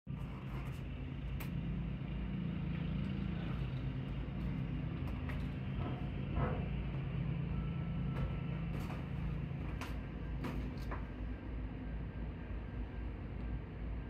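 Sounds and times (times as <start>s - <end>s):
muffled lawn mower engine: 0.1s - 11.4s.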